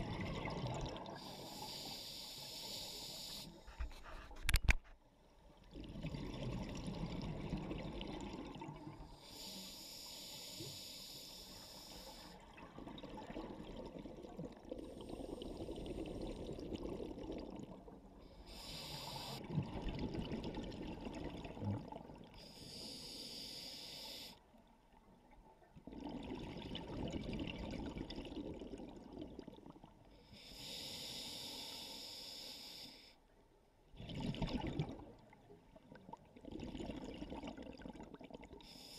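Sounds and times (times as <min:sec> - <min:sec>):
gurgle of exhaled bubbles: 0:00.0 - 0:01.3, 0:05.7 - 0:09.0, 0:25.8 - 0:29.9, 0:34.0 - 0:38.6
hissing regulator inhale: 0:01.2 - 0:04.1, 0:09.2 - 0:12.4, 0:18.3 - 0:19.4, 0:22.4 - 0:24.4, 0:30.2 - 0:33.2, 0:38.6 - 0:38.9.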